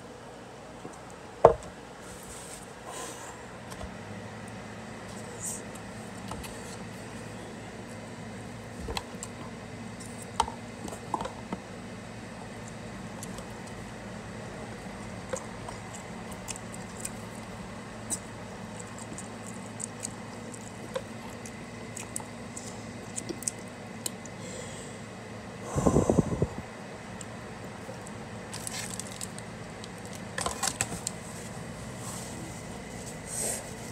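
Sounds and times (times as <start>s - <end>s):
slurping and chewing: 14.8s - 24.4s
low hum: 24.3s - 28.0s.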